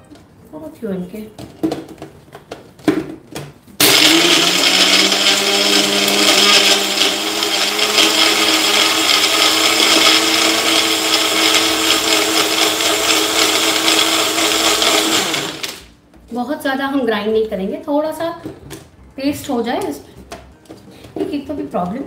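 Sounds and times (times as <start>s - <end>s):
blender grinding: 3.8s - 15.9s.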